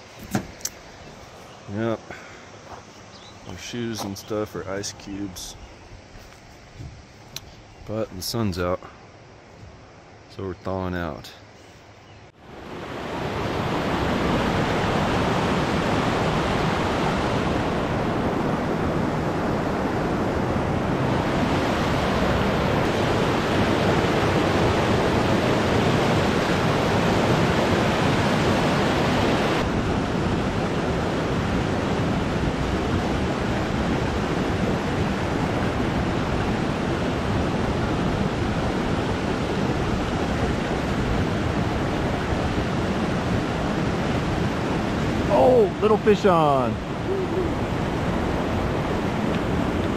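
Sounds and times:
creek rushing over boulders: 0:30.8 - 0:49.9.

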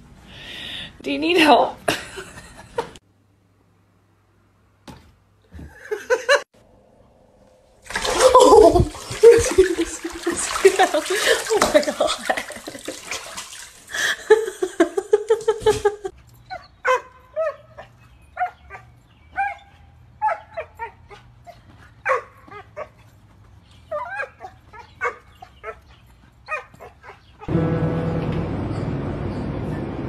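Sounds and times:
small dog yipping: 0:16.5 - 0:21.2, 0:23.9 - 0:25.8, 0:26.5 - 0:27.5.

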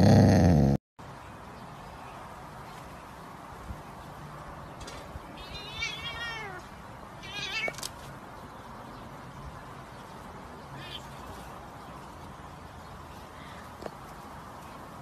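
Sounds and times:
cat yowling: 0:05.4 - 0:06.6.

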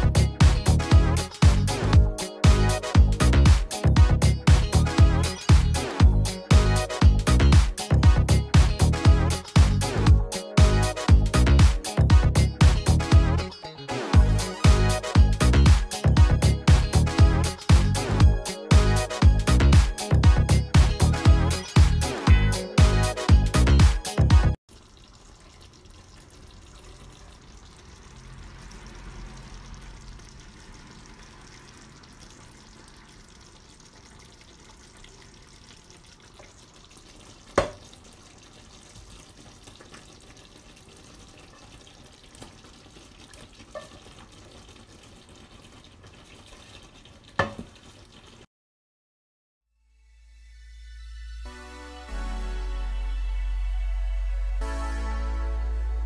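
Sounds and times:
food sizzling in a frying pan: 0:24.8 - 0:48.4.

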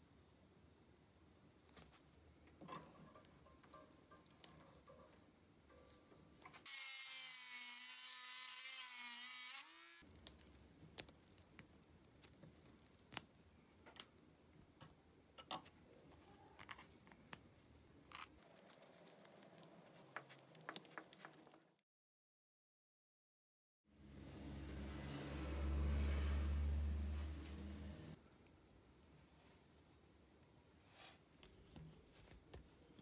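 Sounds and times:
power tool motor whining: 0:06.7 - 0:10.0.

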